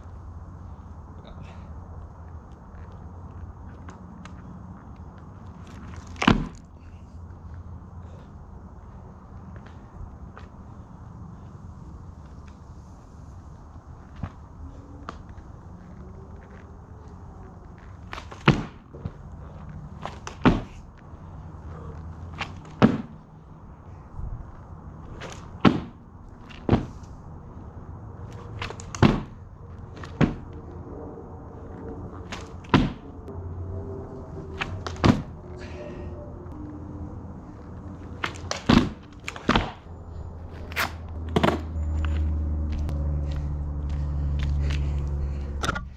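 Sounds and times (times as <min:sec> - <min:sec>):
low steady hum: 0:00.0 - 0:45.9
board slapping onto mat: 0:28.6 - 0:29.3, 0:38.2 - 0:39.8.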